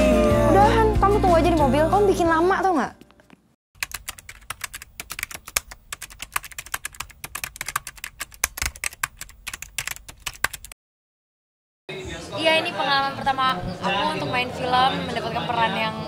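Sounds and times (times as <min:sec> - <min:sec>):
keyboard keys clicking: 0:03.8 - 0:10.7.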